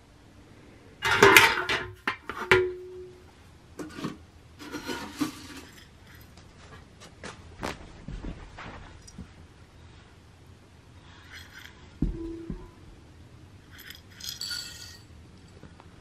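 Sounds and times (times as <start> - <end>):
rustling and scraping: 3.8 - 10.2, 11.0 - 12.8, 13.6 - 15.8
short clinks: 13.7 - 15.6.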